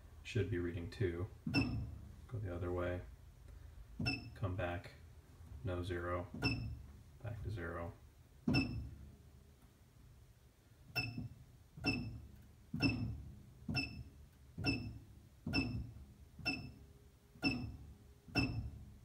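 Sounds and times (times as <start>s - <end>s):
machine click and low thud: 1.4s - 2.1s, 4.0s - 4.4s, 6.3s - 7.0s, 8.4s - 9.1s, 10.9s - 16.8s, 17.4s - 18.9s
short electronic beep: 1.5s - 1.9s, 4.0s - 4.4s, 6.4s - 6.8s, 8.5s - 8.9s, 11.0s - 12.2s, 12.8s - 13.1s, 13.8s - 15.8s, 16.4s - 16.8s, 17.4s - 17.8s, 18.4s - 18.7s.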